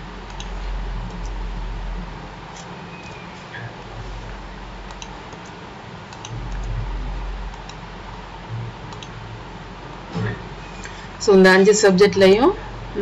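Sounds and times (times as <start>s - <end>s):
low background hum: 0.0s - 13.0s
computer keyboard clicks: 0.3s - 0.6s, 4.9s - 6.7s, 8.9s - 9.2s.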